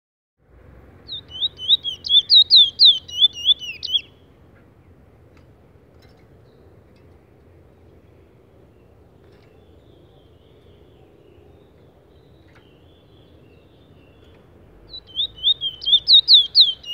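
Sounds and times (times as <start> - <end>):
finch singing whistled notes: 1.1 - 4.2, 8.7 - 16.9.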